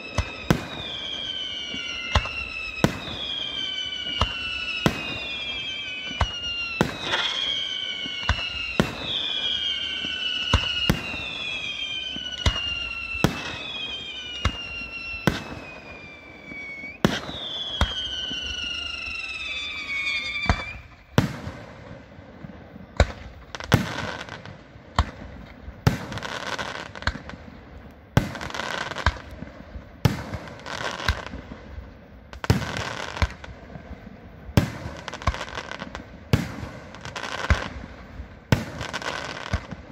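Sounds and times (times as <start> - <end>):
falling firework whistle: 0.0 - 22.1, 28.2 - 31.6, 34.5 - 39.9.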